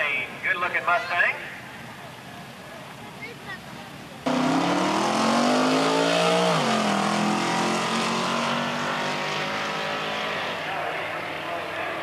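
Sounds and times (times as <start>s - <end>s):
drag car engines accelerating: 4.2s - 12.0s.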